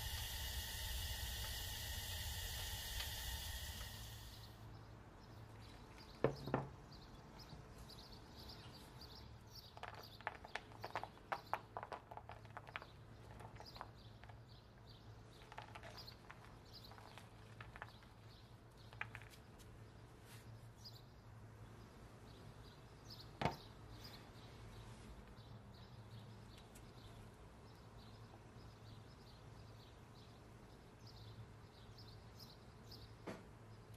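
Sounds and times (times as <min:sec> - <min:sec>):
low steady hum: 0:00.0 - 0:09.5.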